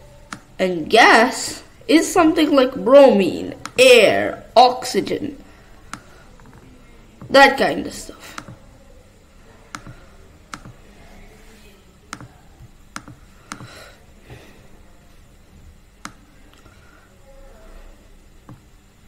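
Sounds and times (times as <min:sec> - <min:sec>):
computer mouse clicking: 0:00.3 - 0:00.5, 0:03.6 - 0:03.8, 0:05.9 - 0:07.3, 0:08.3 - 0:08.6, 0:09.7 - 0:10.8, 0:12.1 - 0:13.7.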